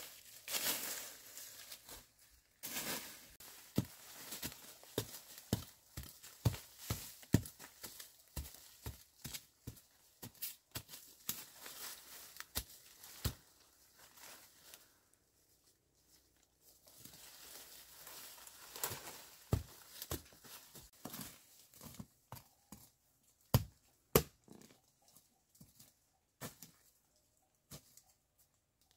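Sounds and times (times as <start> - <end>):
leaf litter crunching: 0.0 - 7.4, 11.0 - 15.0, 16.8 - 20.7.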